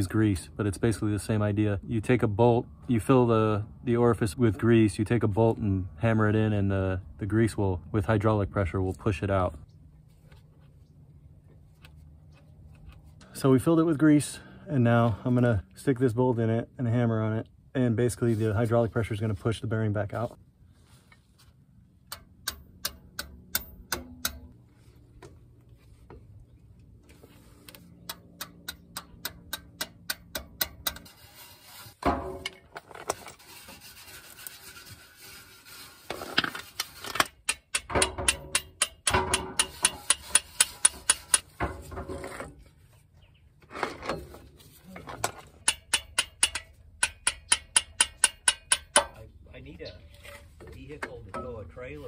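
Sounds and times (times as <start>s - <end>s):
rapid hammer taps on metal: 45.6s - 49.2s.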